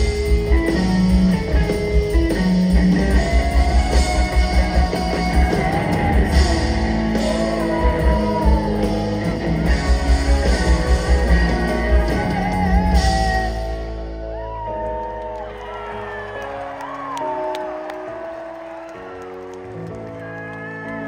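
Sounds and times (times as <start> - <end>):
live rock band playing: 0.0 - 21.0
person singing: 3.1 - 14.5.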